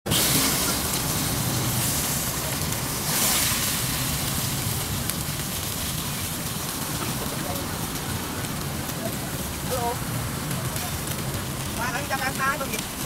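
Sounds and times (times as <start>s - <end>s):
stir-fry sizzling in wok: 0.1s - 13.0s.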